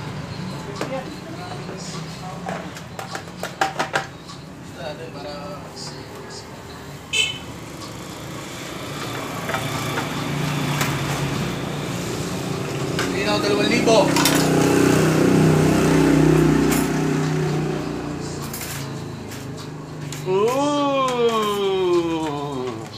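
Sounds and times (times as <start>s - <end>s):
vehicle engine passing by: 7.8s - 20.2s.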